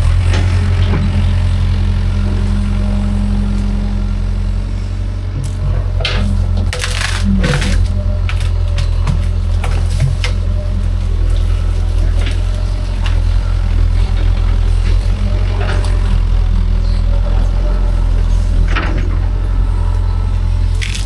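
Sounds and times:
excavator diesel engine droning: 0:00.0 - 0:21.0
vegetation cracking and snapping: 0:06.6 - 0:10.4, 0:20.8 - 0:21.0.

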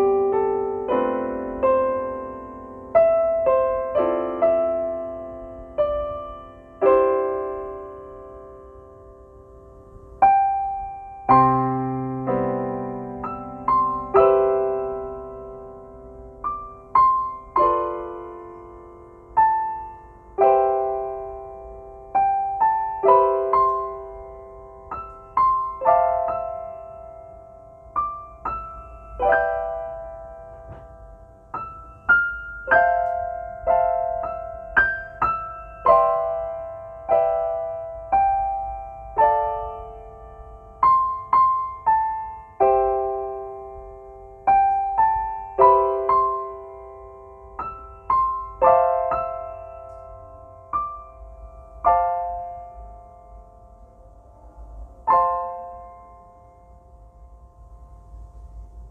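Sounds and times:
solo piano melody: 0:00.0 - 0:58.9.

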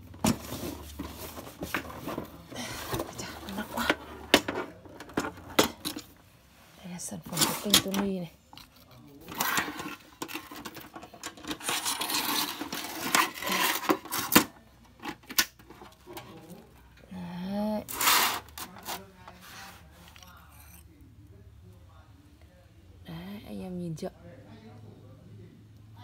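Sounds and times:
scraping on metal case: 0:09.3 - 0:16.5.

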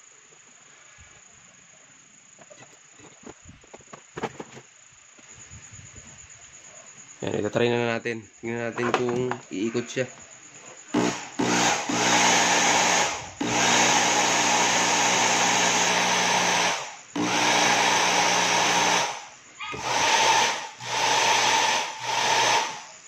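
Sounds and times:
hair dryer motor whirring: 0:11.0 - 0:22.9.

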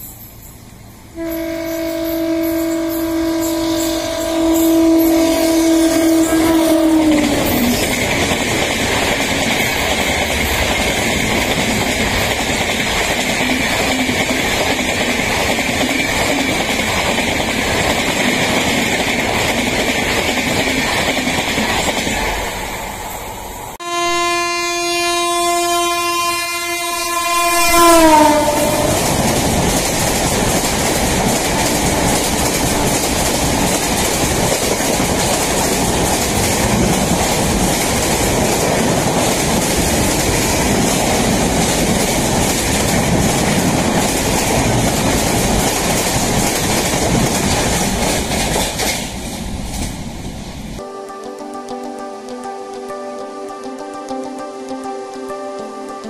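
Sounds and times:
train coaches clattering past: 0:00.0 - 0:23.8, 0:26.9 - 0:50.8
locomotive horn: 0:01.2 - 0:08.0, 0:23.8 - 0:29.6.

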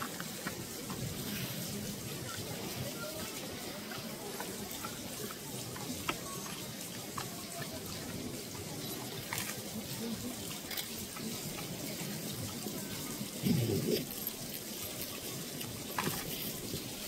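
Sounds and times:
crowd murmuring: 0:00.0 - 0:17.0.

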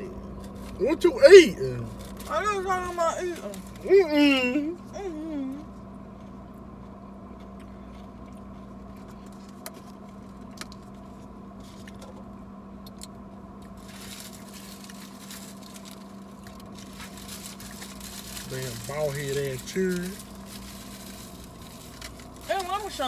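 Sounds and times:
low hum inside a car: 0:00.0 - 0:23.0
person chewing: 0:06.1 - 0:12.2.

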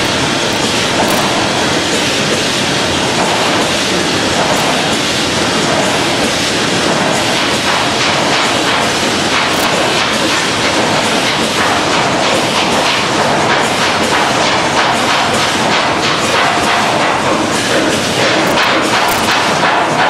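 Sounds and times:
packaging machinery din: 0:00.0 - 0:01.9, 0:08.0 - 0:10.6, 0:17.8 - 0:20.0
machinery clattering: 0:00.0 - 0:20.0.

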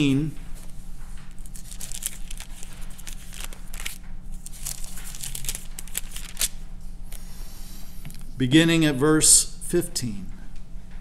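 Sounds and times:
steady low hum: 0:00.0 - 0:11.0
thin pages rustling: 0:00.6 - 0:07.2.

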